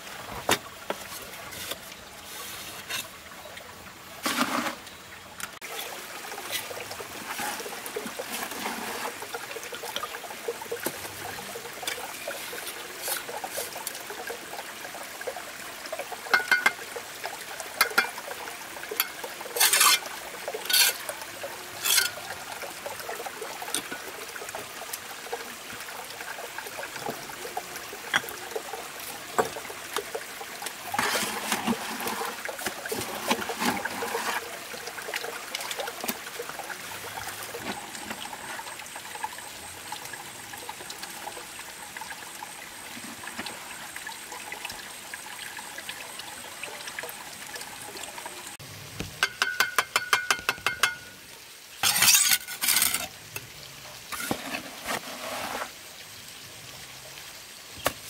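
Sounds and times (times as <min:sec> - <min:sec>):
water trickling: 0:00.0 - 0:58.0
trowel scraping mortar: 0:04.2 - 0:04.8, 0:19.6 - 0:20.1, 0:20.7 - 0:21.0, 0:21.8 - 0:22.2, 0:51.8 - 0:53.1, 0:54.1 - 0:55.7
ringing trowel taps: 0:49.2 - 0:51.1.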